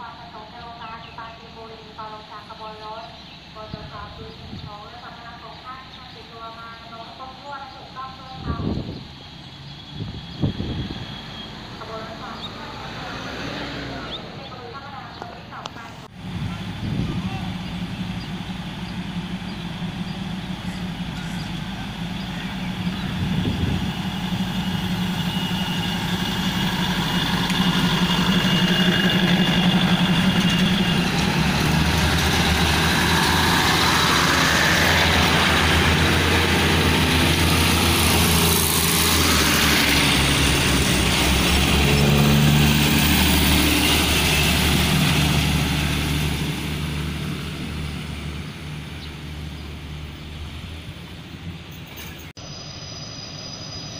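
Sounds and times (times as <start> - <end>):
diesel engines humming: 0.0 - 53.9
train wheels on rails: 15.7 - 52.4.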